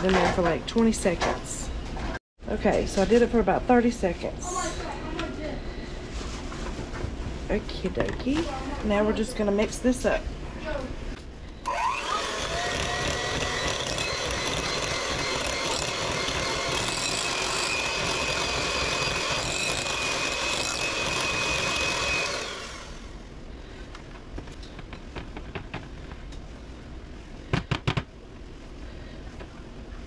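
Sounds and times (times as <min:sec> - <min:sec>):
electric hand mixer whining: 0:11.6 - 0:23.1.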